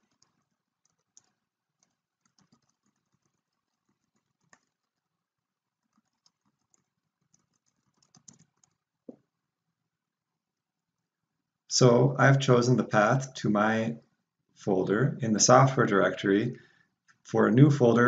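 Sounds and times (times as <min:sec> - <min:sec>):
faint keyboard keystrokes: 0:00.0 - 0:05.1, 0:05.8 - 0:09.2.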